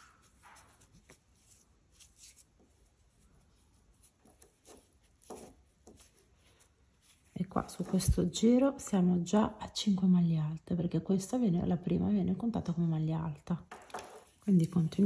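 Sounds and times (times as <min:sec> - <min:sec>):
yarn rustling with crochet hook: 0:00.0 - 0:09.0, 0:13.7 - 0:15.0.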